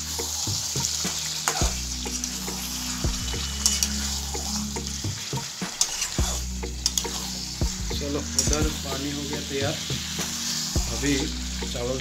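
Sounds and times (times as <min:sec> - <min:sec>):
curry sizzling in a frying pan: 0:00.0 - 0:12.0
metal spatula scraping a pan: 0:00.2 - 0:07.6.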